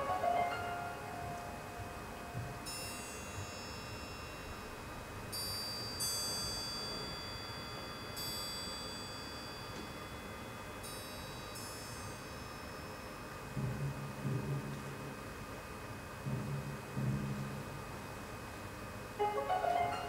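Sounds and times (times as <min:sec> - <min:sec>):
orchestral chime strokes ringing: 0:00.0 - 0:01.6, 0:02.6 - 0:13.3, 0:19.2 - 0:20.0
faint sustained orchestral sound: 0:19.2 - 0:20.0.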